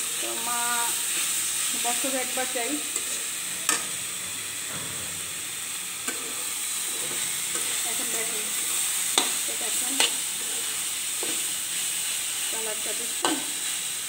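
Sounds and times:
vegetables sizzling in a pan: 0:00.0 - 0:14.0
metal spatula scraping pan: 0:02.9 - 0:04.7.

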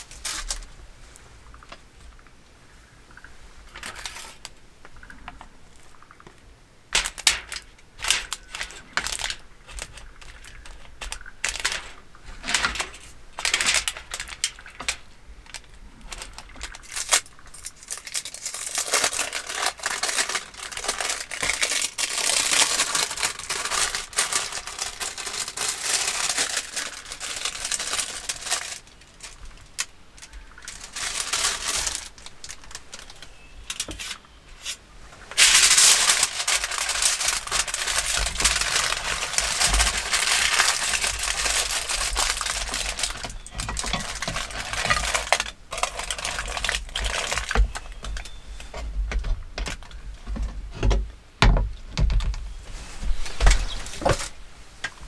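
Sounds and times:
plastic wrapper crinkling: 0:00.0 - 0:00.7, 0:03.7 - 0:04.6, 0:06.9 - 0:34.2, 0:35.3 - 0:48.9.

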